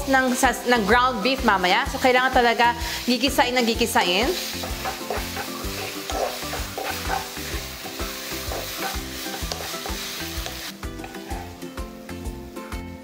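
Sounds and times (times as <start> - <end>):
meat sizzling in a wok: 0.0 - 13.0
wooden spatula scraping a wok: 2.7 - 11.7.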